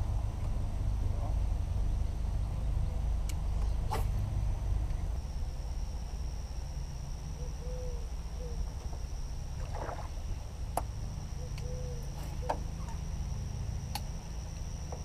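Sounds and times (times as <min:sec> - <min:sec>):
low boat rumble: 0:00.0 - 0:15.0.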